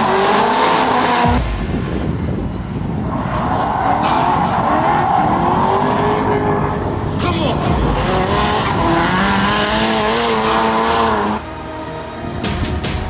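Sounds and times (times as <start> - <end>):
car engine revving hard: 0.0 - 1.5, 3.8 - 11.4
tyre screech: 3.1 - 6.8.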